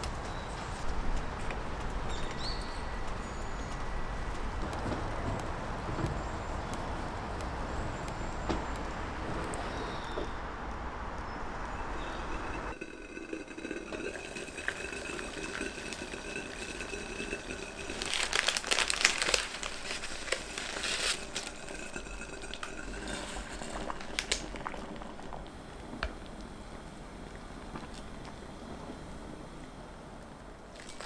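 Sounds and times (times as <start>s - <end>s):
loud crackling and crinkling: 12.4s - 29.1s, 30.6s - 31.0s.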